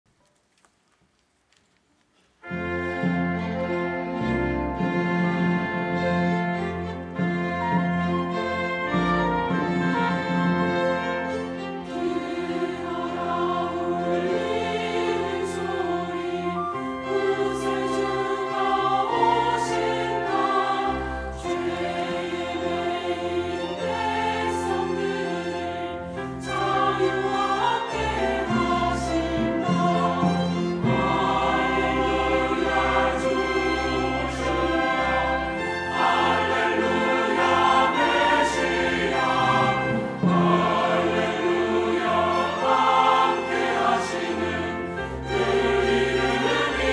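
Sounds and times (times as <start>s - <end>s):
strings accompanying: 2.4s - 46.9s
choir singing in parts: 8.0s - 46.9s.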